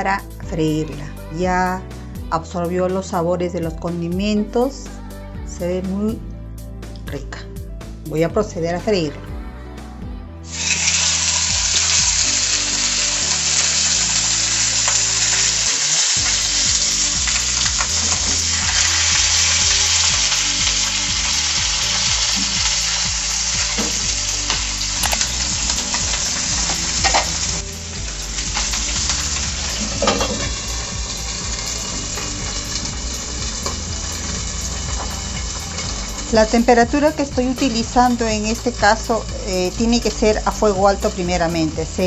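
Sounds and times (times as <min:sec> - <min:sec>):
fish sizzling in hot oil: 0:10.5 - 0:42.0.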